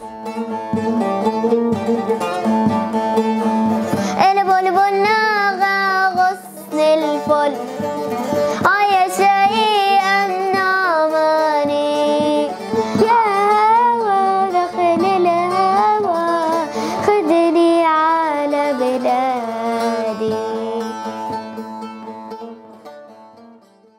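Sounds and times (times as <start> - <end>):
plucked lute: 0.0 - 23.9
girl singing: 3.9 - 21.3.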